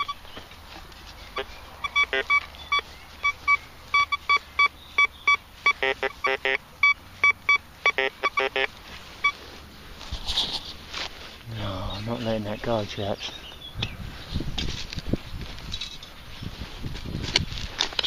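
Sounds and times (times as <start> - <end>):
metal detector beeps: 0.0 - 0.4, 1.3 - 9.5.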